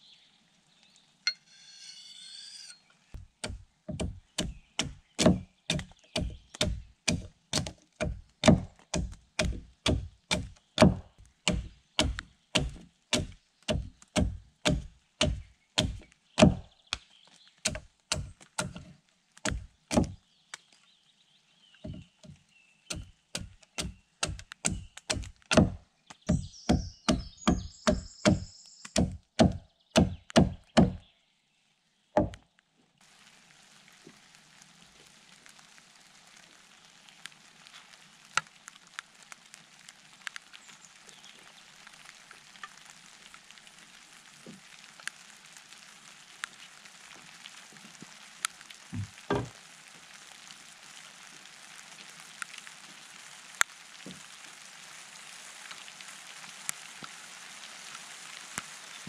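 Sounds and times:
hand axe chopping wood: 0:03.2 - 0:17.0, 0:17.6 - 0:20.2, 0:21.9 - 0:28.4, 0:29.0 - 0:31.0.

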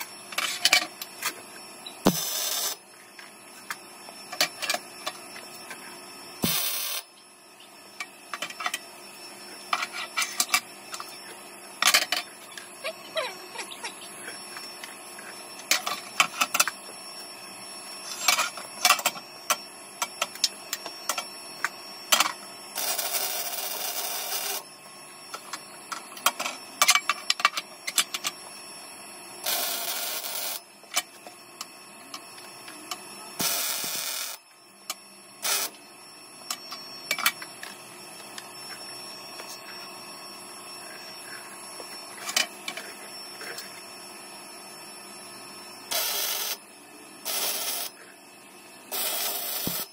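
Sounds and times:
welding arc bursts: 0:06.4 - 0:07.1.

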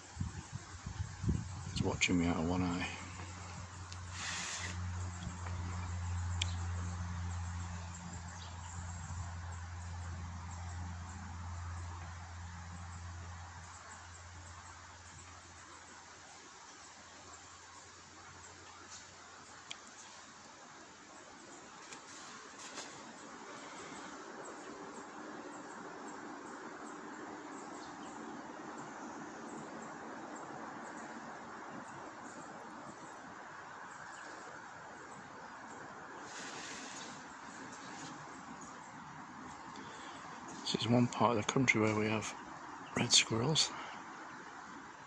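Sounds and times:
background hiss: 0:00.0 - 0:45.0
outdoor rushing hiss: 0:01.8 - 0:05.6, 0:18.8 - 0:25.8, 0:36.0 - 0:41.1.

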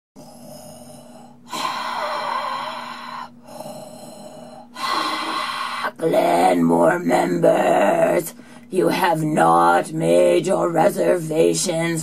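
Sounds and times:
mechanical respirator breathing: 0:00.2 - 0:06.0.

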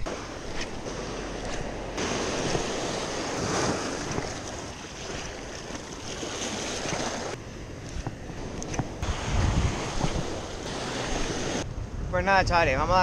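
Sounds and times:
surf breaking on a beach: 0:00.0 - 0:07.4, 0:08.9 - 0:11.6
wind buffeting the microphone: 0:06.5 - 0:13.0.

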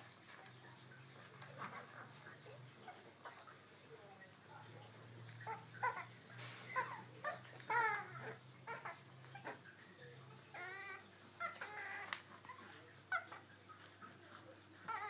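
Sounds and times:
puppies squeaking and whimpering: 0:05.0 - 0:15.0.

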